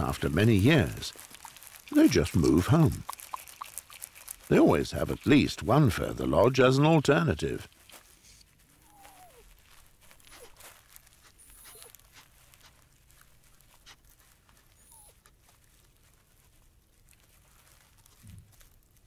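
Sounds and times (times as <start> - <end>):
beaver whining squeaks: 8.8 - 9.5, 10.2 - 10.6, 11.2 - 12.0, 14.8 - 15.2.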